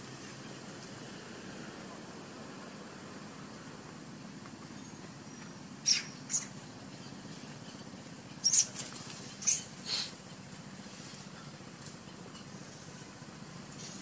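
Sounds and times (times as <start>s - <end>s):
baby monkey squeaking: 5.8s - 6.6s, 8.4s - 9.8s.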